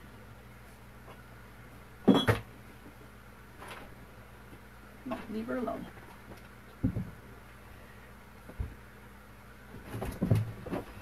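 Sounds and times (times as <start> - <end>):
dull thumps and knocks: 6.8 - 7.2, 9.8 - 11.0.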